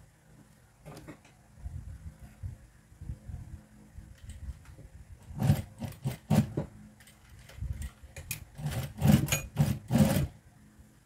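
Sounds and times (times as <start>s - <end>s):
sewing machine stitching: 5.3s - 6.7s, 8.3s - 10.3s.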